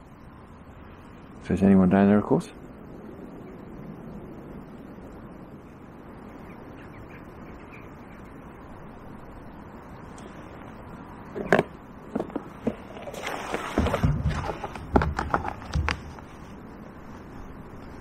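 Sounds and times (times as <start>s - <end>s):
outdoor background noise: 0.0s - 18.0s
fishing gear clicks and knocks: 11.4s - 16.4s
rustling and low thumps: 12.1s - 16.6s.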